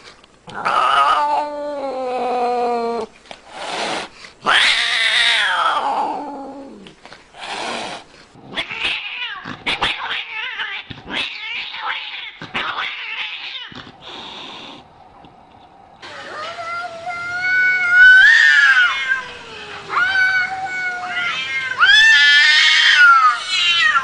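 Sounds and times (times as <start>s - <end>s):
cats yowling: 0.5s - 3.1s, 4.4s - 6.8s, 8.4s - 14.1s, 16.0s - 24.0s.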